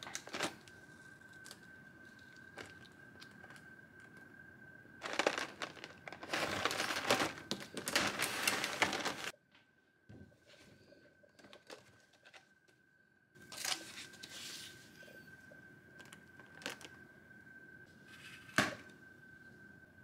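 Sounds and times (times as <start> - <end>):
packaging crinkling and rustling: 0.0 - 4.2, 5.0 - 9.3, 13.5 - 14.3
faint steady high tone: 12.9 - 20.0.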